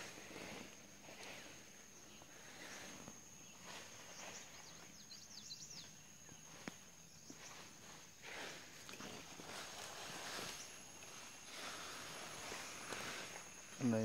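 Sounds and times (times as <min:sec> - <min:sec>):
bird chirps: 0:03.4 - 0:07.6.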